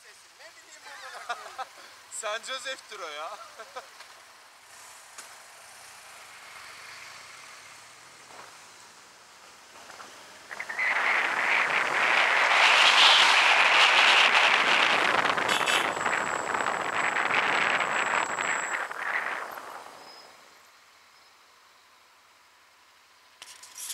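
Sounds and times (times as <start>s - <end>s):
motorcycle engine: 10.5s - 20.3s
wind buffeting microphone: 10.5s - 20.3s.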